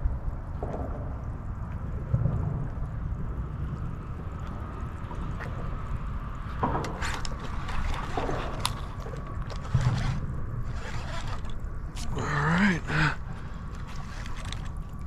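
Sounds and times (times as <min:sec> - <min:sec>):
wind: 0:00.0 - 0:15.0
waves lapping against boat hull: 0:04.3 - 0:15.0.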